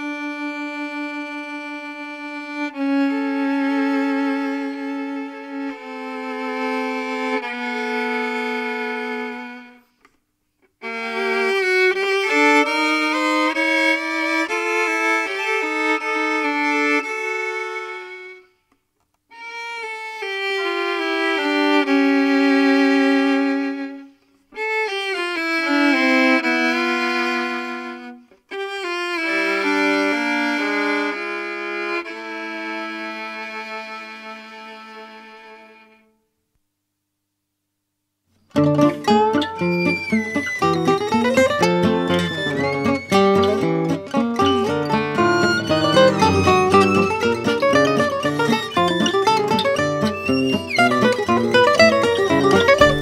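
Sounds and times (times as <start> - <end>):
violin melody: 0.0 - 10.0, 10.8 - 18.6, 19.3 - 36.2, 38.6 - 53.0.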